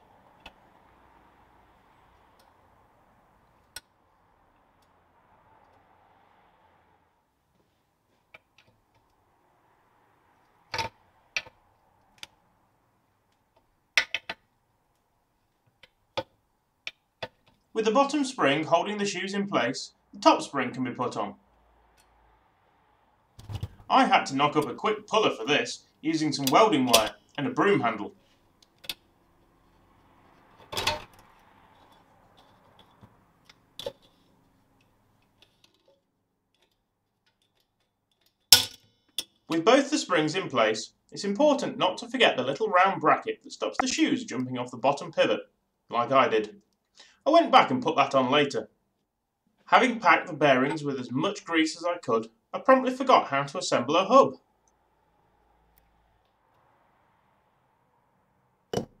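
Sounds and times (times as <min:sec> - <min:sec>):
small metallic clicks: 0:28.6 - 0:29.4, 0:30.3 - 0:39.5.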